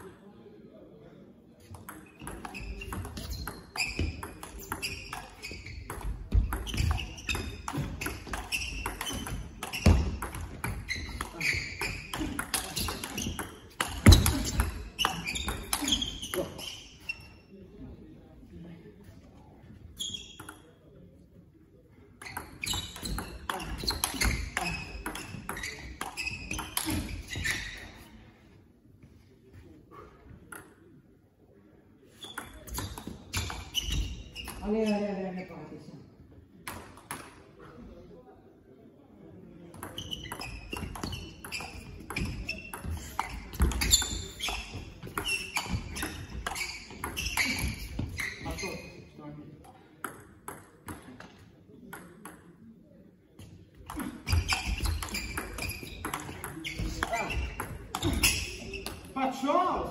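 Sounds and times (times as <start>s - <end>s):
short squeaks: 22.2s - 28.1s, 39.9s - 49.0s, 53.9s - 59.1s.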